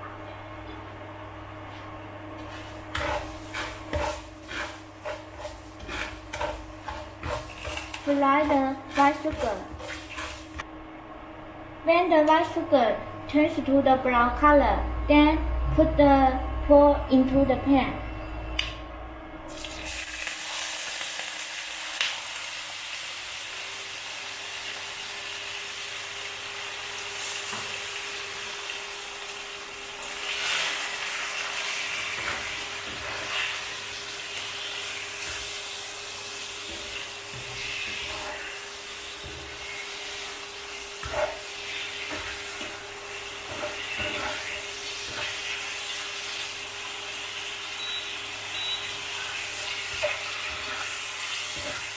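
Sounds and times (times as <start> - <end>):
pork sizzling in hot oil: 2.4 - 10.6, 19.5 - 51.9
wooden spatula scraping a wok: 2.4 - 10.6, 36.4 - 45.7.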